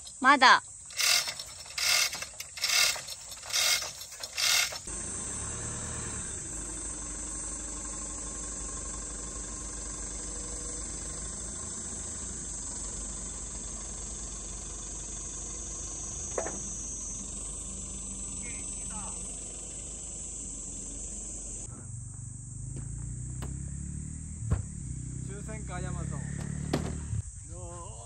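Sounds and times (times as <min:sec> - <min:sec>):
chain hoists clattering: 0:00.0 - 0:04.9
truck engine running: 0:00.0 - 0:28.0.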